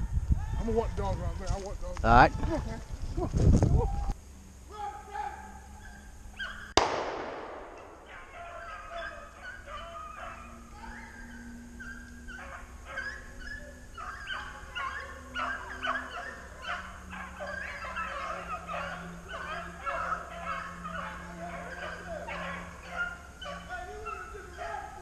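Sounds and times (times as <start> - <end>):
hounds baying: 4.8 - 6.8, 7.6 - 25.0.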